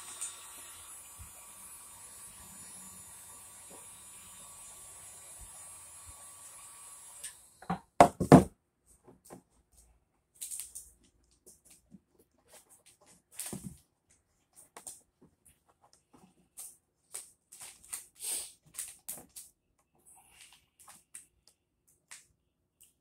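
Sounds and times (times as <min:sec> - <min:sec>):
heat gun whine and hiss: 0:00.0 - 0:07.7.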